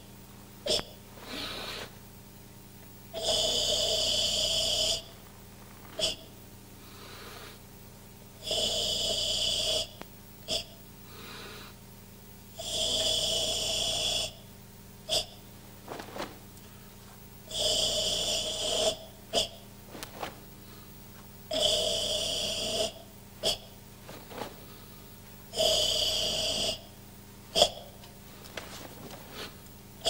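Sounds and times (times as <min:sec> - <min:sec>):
loud hissing exhalations: 0:01.1 - 0:02.0, 0:03.2 - 0:07.7, 0:11.1 - 0:11.8, 0:29.0 - 0:29.7
short sharp breaths: 0:01.2 - 0:02.0.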